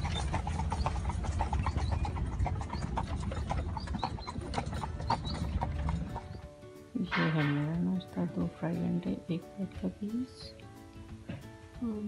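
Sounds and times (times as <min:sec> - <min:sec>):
carriage rumble: 0:00.0 - 0:06.4
horse hooves clip-clopping: 0:00.0 - 0:11.6.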